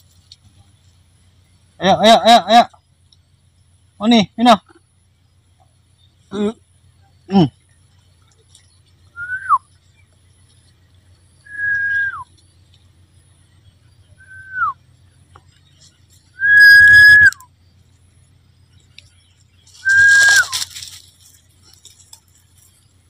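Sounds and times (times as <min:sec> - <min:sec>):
person whistling: 0:09.2 - 0:09.6, 0:11.5 - 0:12.3, 0:14.2 - 0:14.8, 0:16.4 - 0:17.4, 0:19.8 - 0:20.6.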